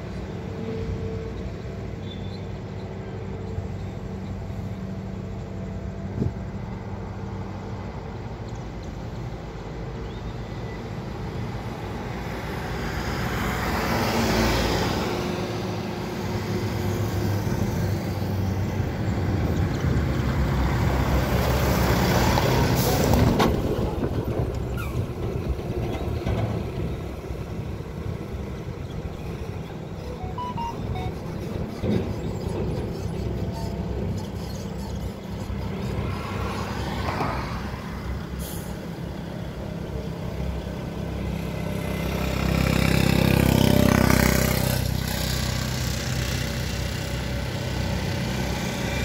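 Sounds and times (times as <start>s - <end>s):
diesel engine drone: 0.0s - 49.0s
passing vehicles: 0.0s - 49.0s
air brakes hissing: 38.3s - 39.0s.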